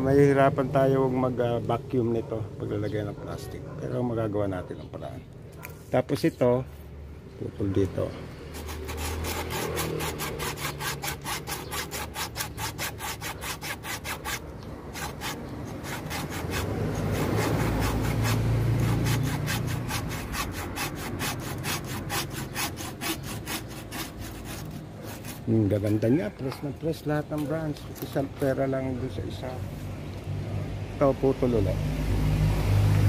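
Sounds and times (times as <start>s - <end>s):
hand saw cutting wood: 8.0s - 26.6s.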